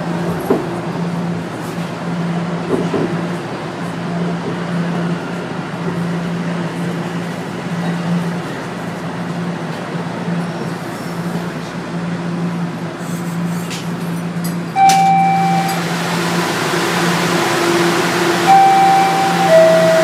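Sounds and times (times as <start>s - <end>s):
subway train motor hum: 0.0s - 20.0s
train doors opening: 13.5s - 20.0s
chime tone: 14.8s - 15.9s, 18.3s - 20.0s.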